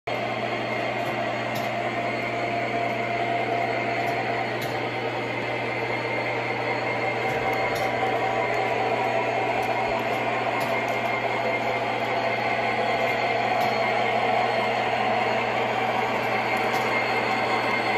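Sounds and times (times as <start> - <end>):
low hum: 0.1 - 17.9
model train motors whirring: 0.1 - 17.9.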